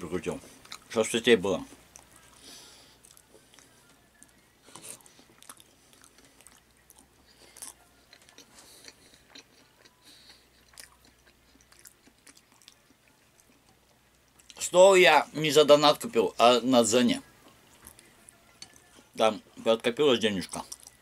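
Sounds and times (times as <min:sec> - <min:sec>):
person chewing salad: 0:00.4 - 0:00.9, 0:01.7 - 0:03.7, 0:04.3 - 0:14.6, 0:20.4 - 0:21.0.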